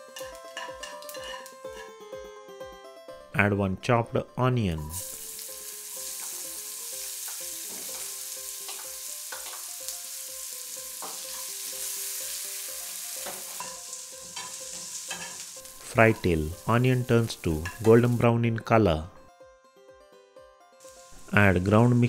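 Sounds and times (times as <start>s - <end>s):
metal spatula scraping pan: 0.5s - 1.9s, 13.5s - 16.2s
onion sizzling in oil: 4.9s - 18.3s, 20.8s - 22.0s.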